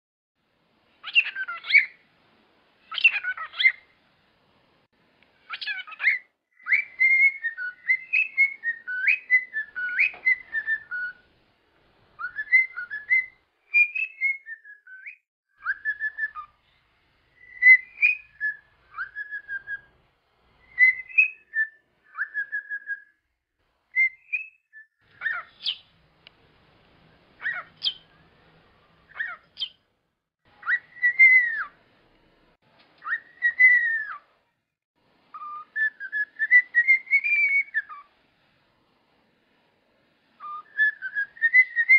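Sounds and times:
cockatiel chirps: 1.0 - 2.0, 2.8 - 4.0, 5.4 - 11.2, 12.2 - 19.9, 20.6 - 23.1, 23.9 - 25.9, 27.4 - 28.2, 29.1 - 29.8, 30.6 - 31.8, 33.0 - 34.3, 35.3 - 38.1, 40.4 - 41.9
cockatiel whistling: 1.0 - 2.0, 2.8 - 3.9, 5.5 - 11.2, 12.2 - 19.9, 20.6 - 23.2, 23.9 - 25.9, 27.4 - 28.2, 29.1 - 29.8, 30.6 - 31.8, 33.0 - 34.3, 35.3 - 38.1, 40.4 - 41.9.

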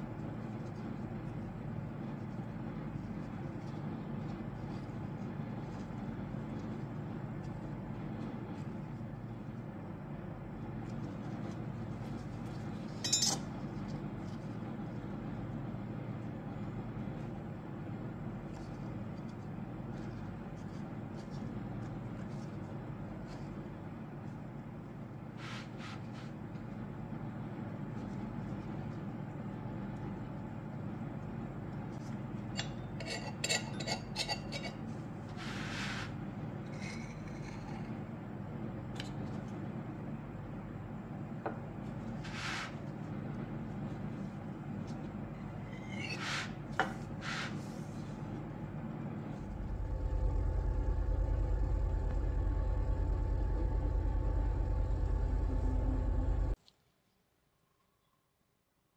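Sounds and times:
low background hum: 0.0 - 58.9
knife clinking on metal rings: 13.0 - 13.5.

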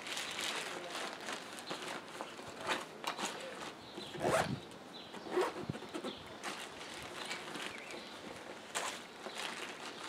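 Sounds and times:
backpack zipper being pulled: 4.2 - 4.6, 5.3 - 5.8.

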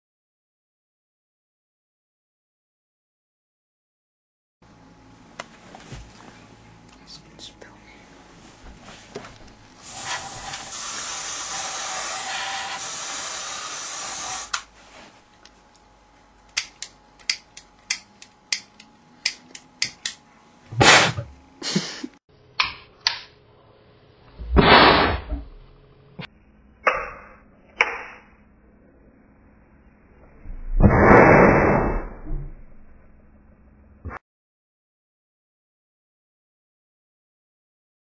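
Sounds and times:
aerosol spray hiss: 9.8 - 14.6.

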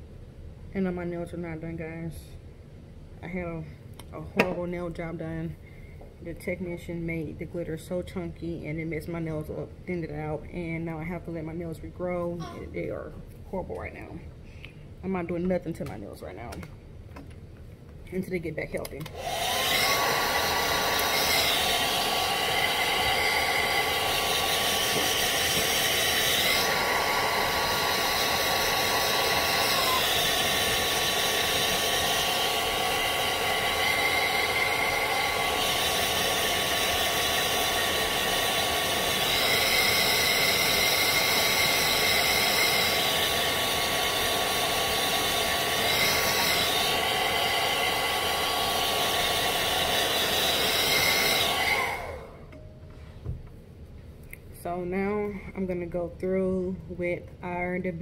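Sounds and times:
hair dryer motor and airflow: 18.9 - 52.5.

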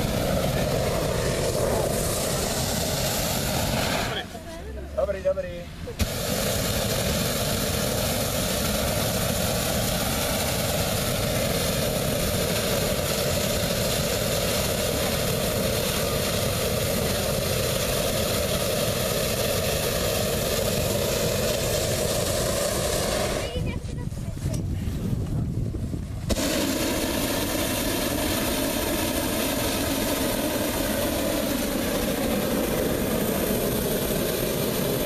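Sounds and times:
propane burner roaring: 0.0 - 35.0.

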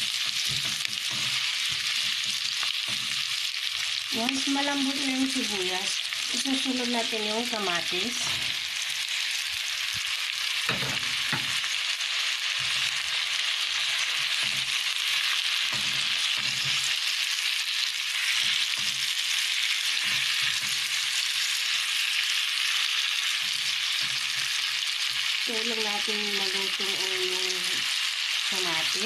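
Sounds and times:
onions sizzling in hot oil: 0.0 - 29.0
utensil knocking and scraping pan: 0.2 - 3.3.

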